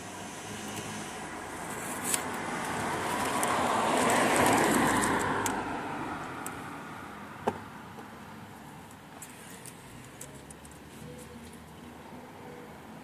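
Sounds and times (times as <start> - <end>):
car passing by: 0.0 - 7.3.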